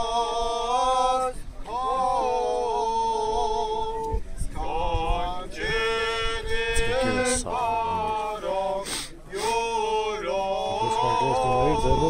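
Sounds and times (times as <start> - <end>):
man chanting a prayer: 6.5 - 12.0.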